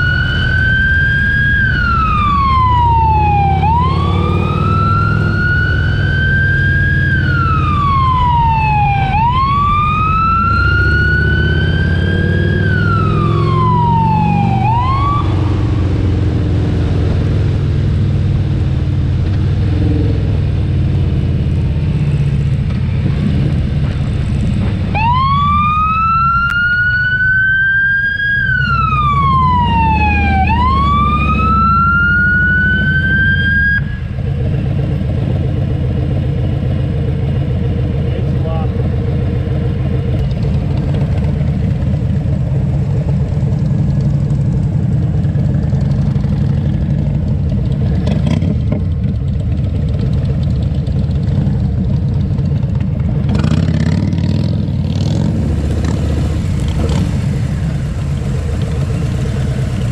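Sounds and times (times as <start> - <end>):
wailing emergency siren: 0.0 - 16.8, 24.9 - 34.3
motorcycle engine running: 34.1 - 59.9.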